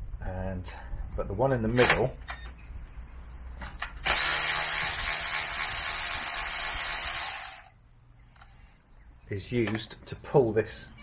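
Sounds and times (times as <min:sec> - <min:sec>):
electric ratchet running: 0:04.0 - 0:07.7.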